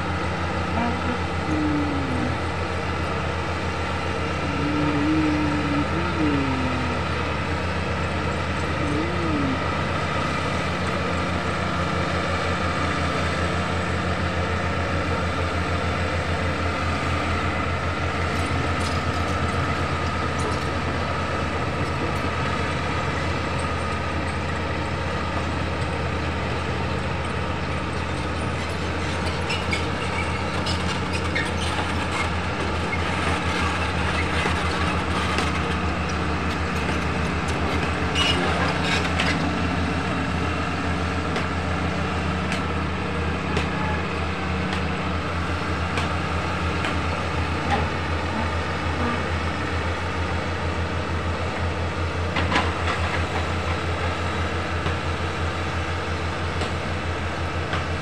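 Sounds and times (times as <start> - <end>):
bulldozer diesel engine running: 0.0 - 58.0
steel tracks clanking and squeaking: 27.0 - 41.6, 45.8 - 58.0.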